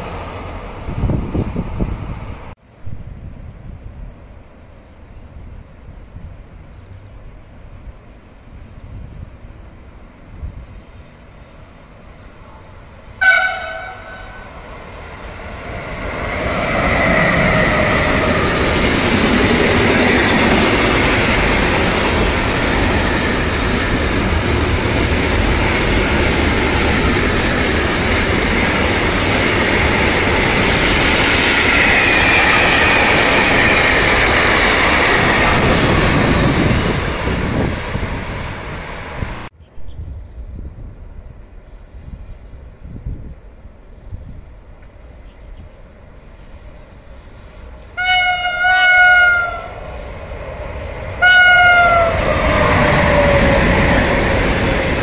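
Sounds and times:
freight train rumble and clatter: 0:00.0 - 0:04.4, 0:05.2 - 0:55.0
train wheel squeal: 0:02.8 - 0:39.4, 0:45.2 - 0:55.0
train horn blast: 0:13.2 - 0:14.6, 0:47.9 - 0:49.8, 0:51.2 - 0:52.8.

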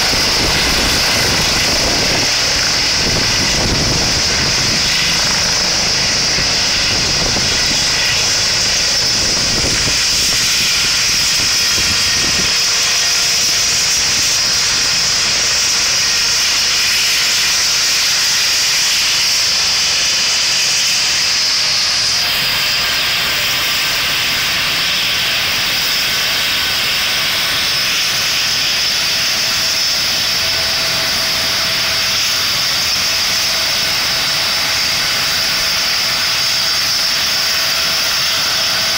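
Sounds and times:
helicopter rotor blades beating: 0:00.0 - 0:38.9
turbine engine whine and hiss: 0:00.0 - 0:38.9.

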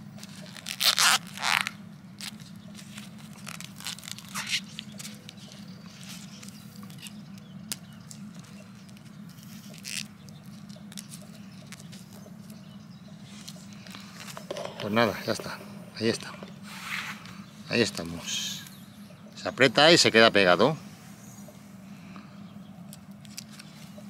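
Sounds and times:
film crinkling and stretching: 0:00.0 - 0:12.6
steady low hum: 0:00.0 - 0:24.0.

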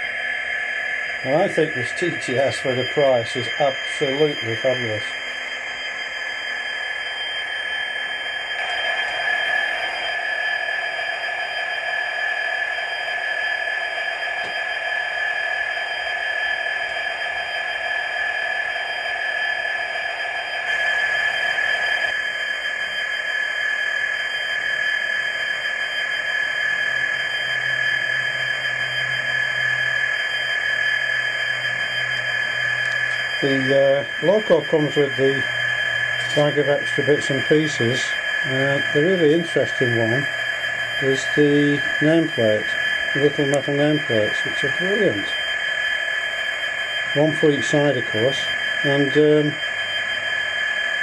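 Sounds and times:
constant high tone: 0:00.0 - 0:51.0
model diesel engine sound: 0:31.2 - 0:45.3.

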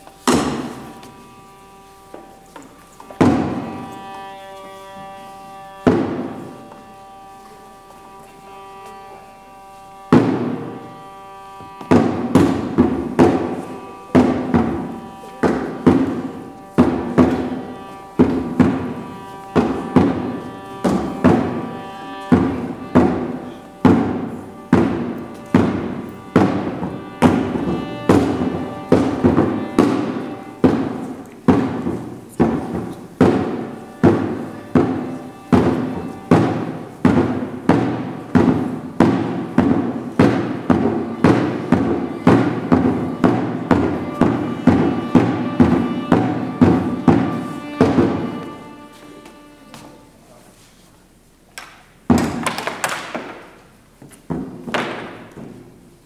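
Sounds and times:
steady repeated drum beat: 0:11.9 - 0:48.8
held musical note: 0:41.1 - 0:50.4.

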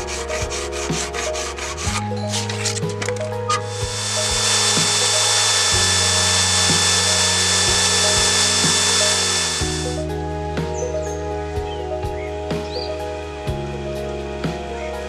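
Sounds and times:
grinder hissing on steel blade: 0:00.0 - 0:10.0
background music: 0:00.0 - 0:15.0.

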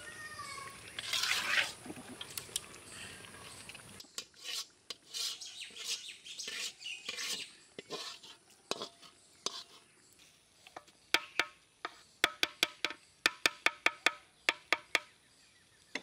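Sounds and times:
metal utensil scraping a pot: 0:01.0 - 0:01.8, 0:04.0 - 0:09.9.

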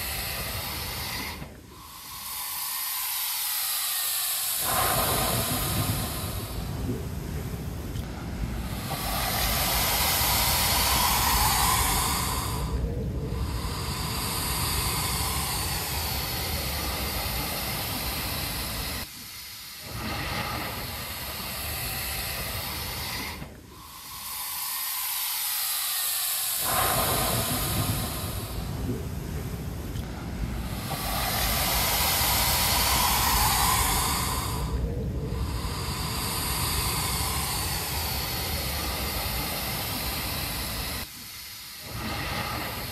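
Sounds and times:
wind rumbling on microphone: 0:04.7 - 0:19.1, 0:26.7 - 0:41.0.

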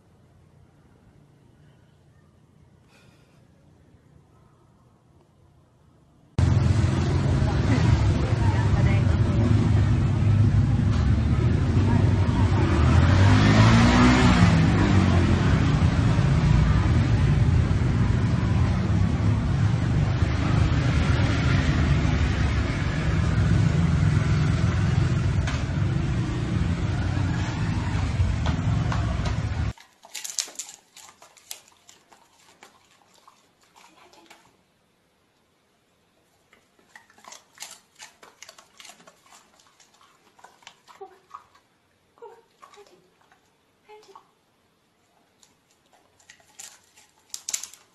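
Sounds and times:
motor scooter driving past: 0:06.4 - 0:29.7
cars driving past: 0:06.4 - 0:29.8.

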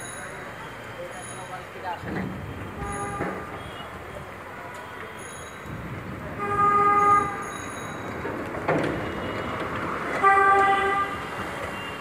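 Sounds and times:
traffic hum: 0:00.0 - 0:12.0
vehicle horn honking: 0:02.7 - 0:03.9, 0:06.4 - 0:07.5, 0:10.2 - 0:12.0.

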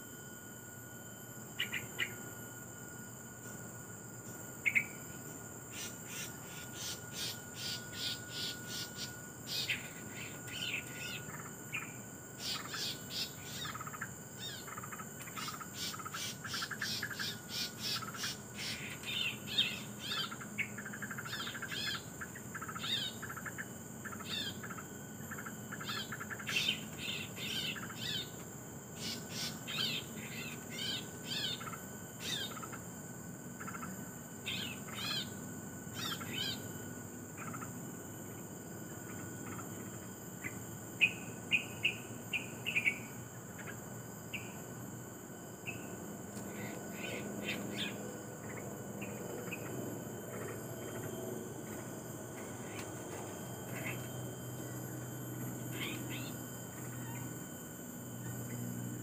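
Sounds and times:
high insect drone: 0:00.0 - 0:59.0
small birds chirping: 0:01.6 - 0:02.2, 0:04.6 - 0:05.0, 0:05.7 - 0:28.4, 0:29.0 - 0:32.8, 0:33.6 - 0:36.7, 0:39.0 - 0:44.6, 0:45.6 - 0:51.1, 0:53.6 - 0:55.0, 0:55.7 - 0:57.3.

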